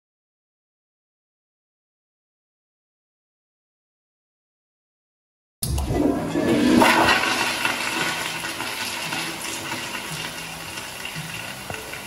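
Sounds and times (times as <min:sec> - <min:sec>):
toilet flushing: 0:05.6 - 0:12.0.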